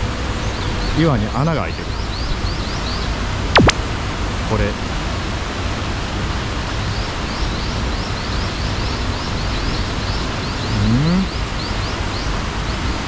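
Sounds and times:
short rising chirps: 3.6 - 3.8.

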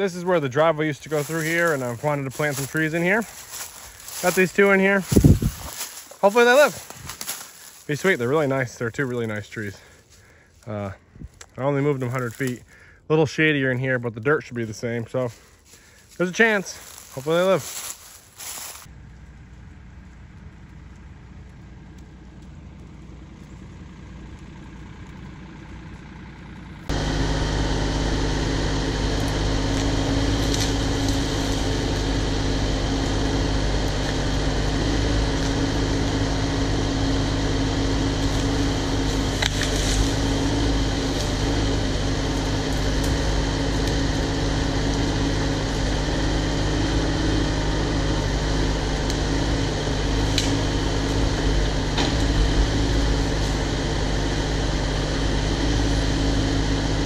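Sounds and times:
diesel excavator engine running: 0.0 - 57.0.

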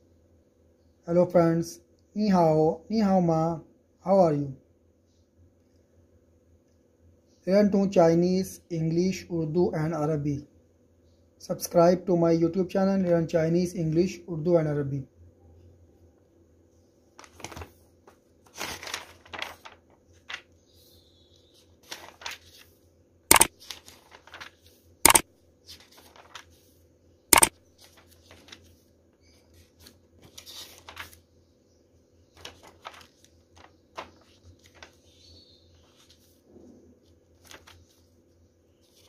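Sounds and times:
faint steady hum: 0.0 - 39.0
book pages rustling: 17.2 - 26.8, 27.4 - 31.4, 32.3 - 39.0.

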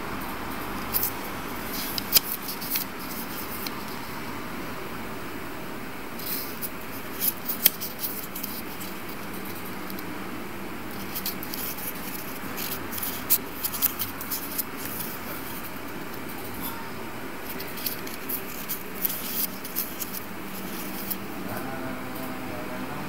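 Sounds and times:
paper pages crackling: 0.7 - 4.0, 6.2 - 10.1, 10.8 - 16.7, 17.4 - 21.5.

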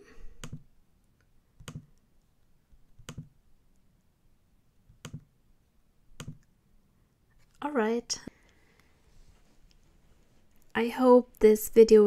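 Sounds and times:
computer mouse clicks: 0.4 - 0.6, 1.2 - 2.0, 3.0 - 3.3, 4.9 - 5.3, 6.2 - 6.5.

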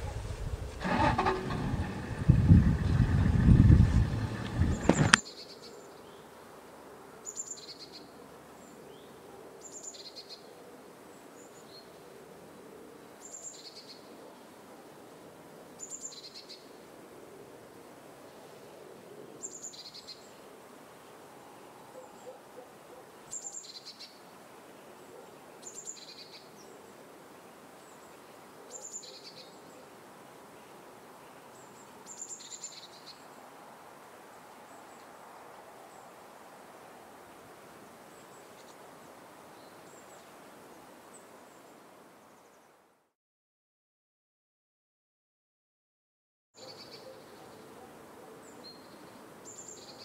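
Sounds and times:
background hiss: 0.0 - 42.9.

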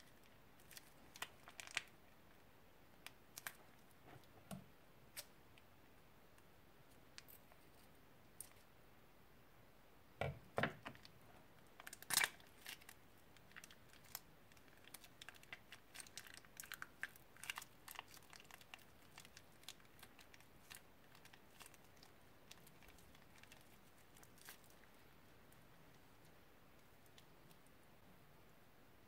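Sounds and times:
plastic bag of beads crinkling: 11.8 - 24.9.

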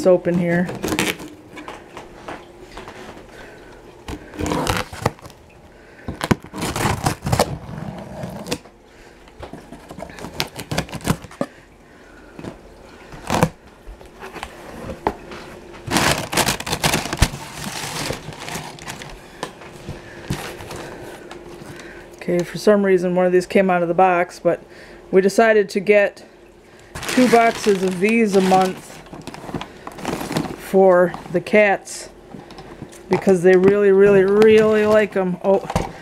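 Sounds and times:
packing paper crinkling: 0.5 - 1.8, 4.1 - 5.4, 6.1 - 8.6, 9.7 - 11.5, 15.8 - 21.8, 26.9 - 31.3, 34.0 - 35.9
cardboard flaps pulled open: 4.1 - 5.3, 6.2 - 8.7, 27.0 - 30.6
knife slitting packing tape: 6.2 - 8.6, 10.1 - 11.4, 15.9 - 19.1.

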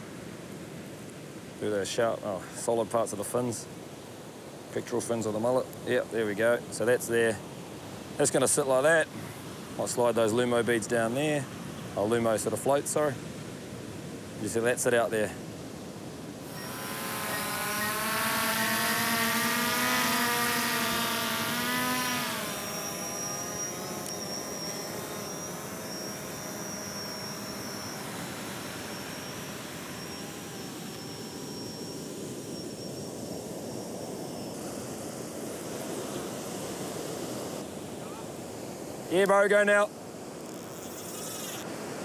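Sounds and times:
drone propellers whining: 16.4 - 37.6.

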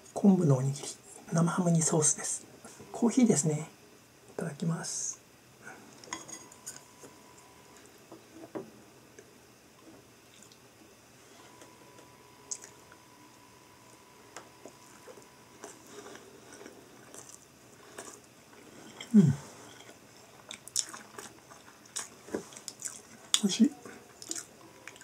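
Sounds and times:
quiet chewing: 9.1 - 10.7, 11.4 - 25.0.

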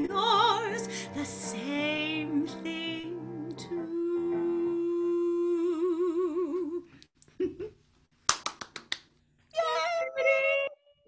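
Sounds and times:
woman singing with vibrato: 0.0 - 6.9, 9.6 - 11.0
quick hand claps: 8.2 - 9.2.

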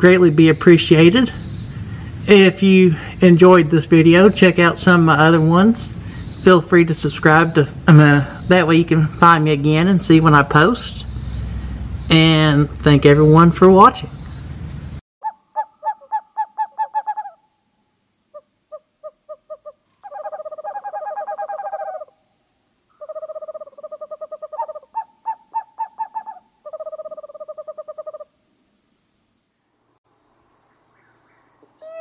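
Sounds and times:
owl hooting: 4.2 - 6.6, 15.2 - 17.5, 18.3 - 22.2, 22.9 - 28.4, 31.8 - 32.0.

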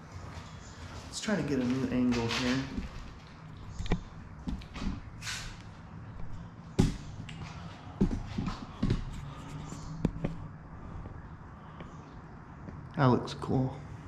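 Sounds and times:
sharp knocks and clicks: 2.2 - 5.1.

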